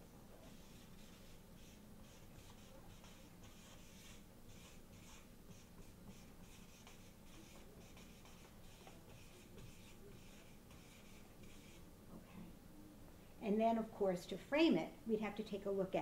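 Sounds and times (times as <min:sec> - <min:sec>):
marker pen scratching on paper: 0:00.4 - 0:11.8.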